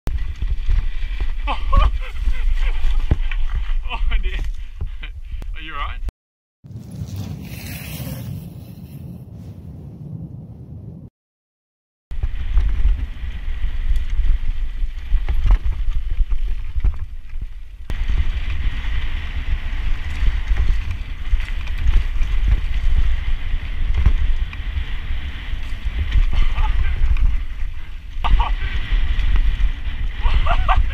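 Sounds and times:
wind buffeting microphone: 0:00.1 - 0:06.0, 0:06.7 - 0:11.1, 0:12.1 - 0:30.9
bike rattles and knocks: 0:12.2 - 0:30.9.

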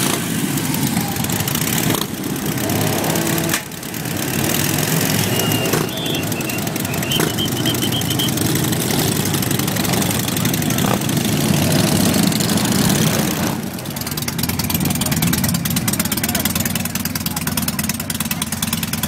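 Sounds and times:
motorcycle engines rumbling: 0:00.0 - 0:19.0
short high beeps: 0:05.1 - 0:08.5.

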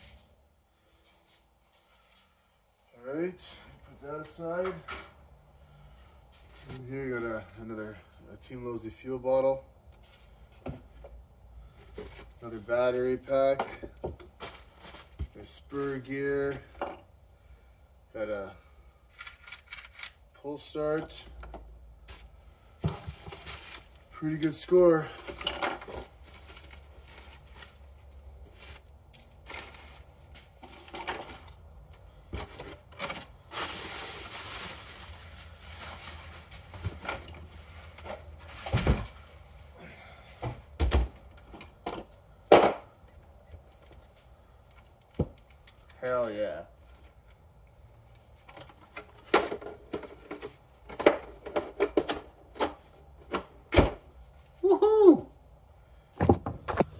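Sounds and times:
bubble wrap and cardboard rustling: 0:11.6 - 0:13.3, 0:14.2 - 0:16.3, 0:22.0 - 0:25.1, 0:25.8 - 0:31.0, 0:32.4 - 0:39.8.

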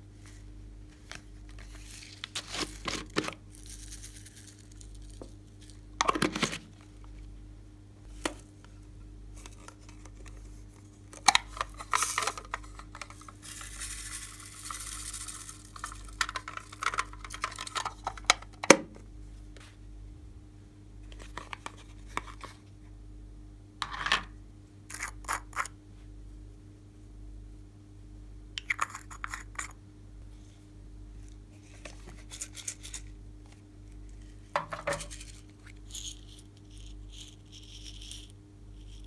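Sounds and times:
rustling scrape: 0:00.2 - 0:05.1
plastic cases clicking and knocking: 0:34.6 - 0:35.1.

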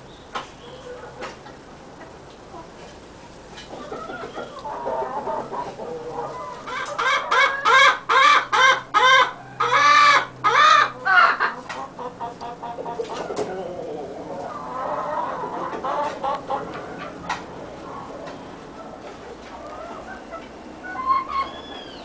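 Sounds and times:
hen cackling loudly: 0:03.8 - 0:17.2, 0:19.6 - 0:22.0.

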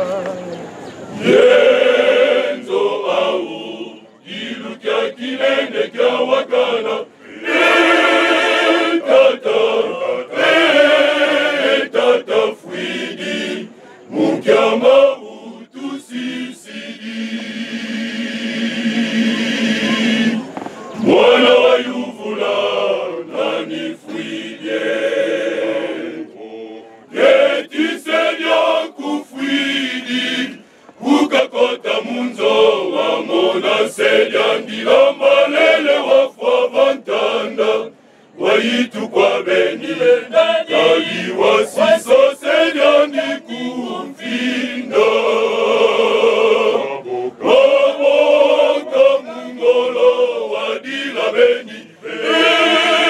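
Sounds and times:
male choir singing unaccompanied: 0:00.0 - 0:53.0.

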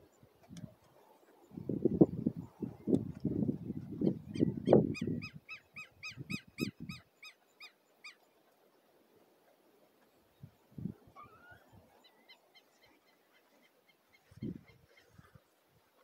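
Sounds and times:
animal giving short high calls: 0:11.2 - 0:11.7.

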